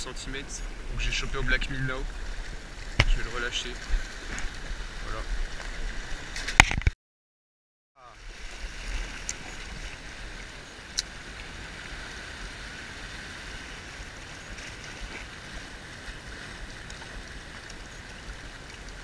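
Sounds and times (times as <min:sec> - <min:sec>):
sea washing over rocks: 0:00.1 - 0:06.8.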